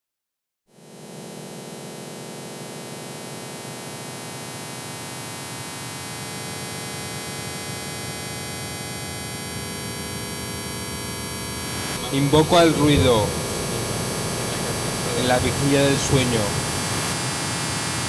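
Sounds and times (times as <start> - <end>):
electronic drone of held tones: 0.8 - 18.0
hiss and static: 11.3 - 18.0.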